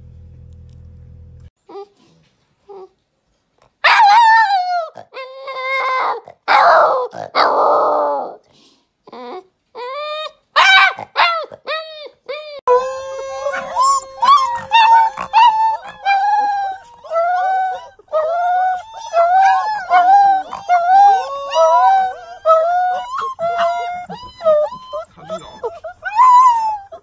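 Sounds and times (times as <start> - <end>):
puppies howling and yipping: 3.9 - 8.4, 9.8 - 27.0
low held howl: 12.6 - 27.0.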